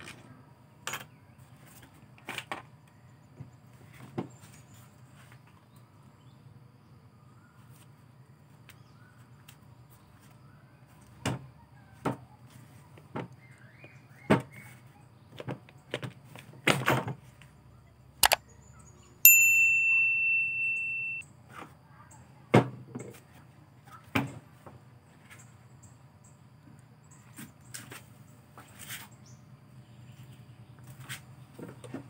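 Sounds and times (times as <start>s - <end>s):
bell ding sound effect: 19.3s - 21.2s.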